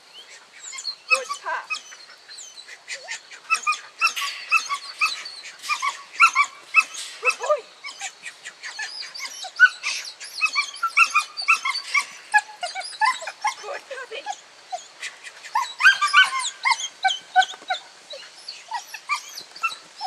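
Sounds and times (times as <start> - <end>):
dogs whining and yipping: 0.5 - 20.0.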